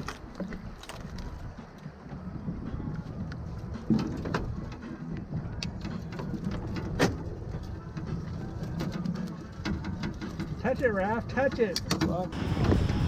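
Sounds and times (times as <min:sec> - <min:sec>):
wind: 0:00.0 - 0:13.0
knocks and clicks of landing net: 0:05.7 - 0:07.4, 0:11.4 - 0:12.3.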